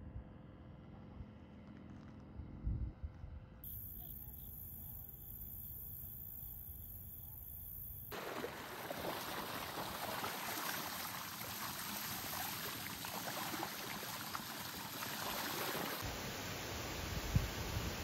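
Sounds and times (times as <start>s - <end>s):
water splashing off bike wheel: 8.1s - 16.0s.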